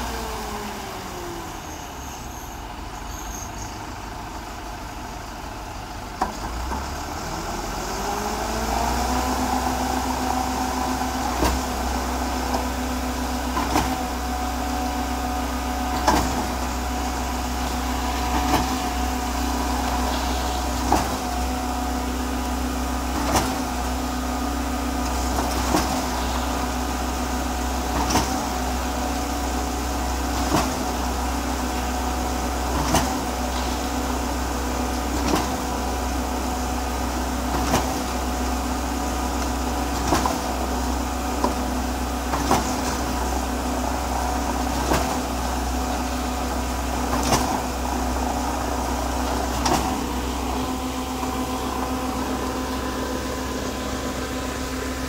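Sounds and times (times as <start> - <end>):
concrete pump machine running: 0.0 - 55.0
pump pistons knocking: 25.0 - 55.0.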